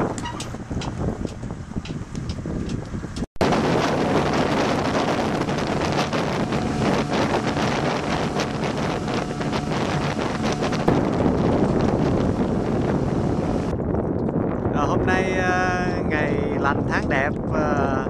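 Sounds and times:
outboard motor boat running: 0.0s - 14.3s
wind on microphone: 0.0s - 18.0s
water rushing past hull: 3.4s - 13.7s.

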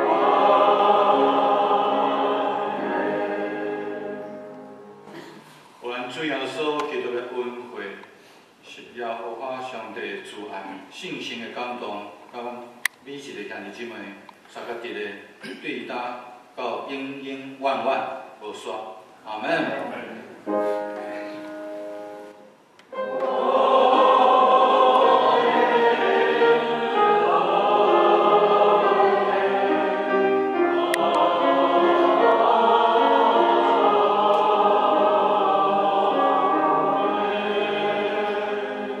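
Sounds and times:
choir singing a hymn: 0.0s - 5.2s, 19.9s - 39.0s.

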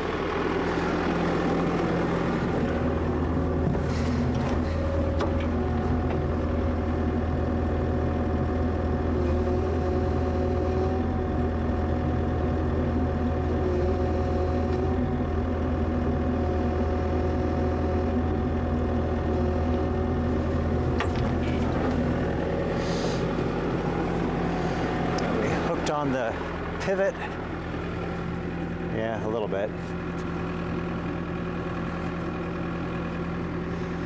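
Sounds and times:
hydraulic whine: 0.0s - 7.0s, 9.1s - 11.2s, 19.2s - 27.4s
diesel engine running: 0.0s - 34.0s.

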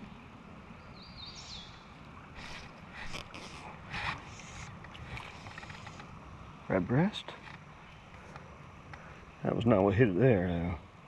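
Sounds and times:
steady outdoor hiss: 0.0s - 11.0s
fish splashing: 2.1s - 6.2s.

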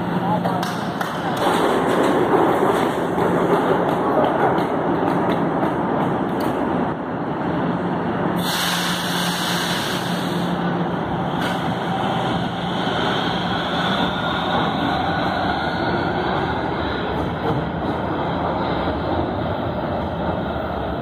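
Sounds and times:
metro train pulling out: 0.0s - 21.0s
air hissing: 8.4s - 10.6s.

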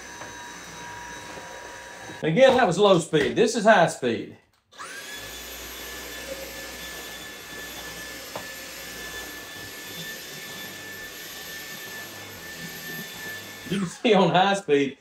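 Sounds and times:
vacuum cleaner motor whine: 0.0s - 2.2s, 4.8s - 14.4s.

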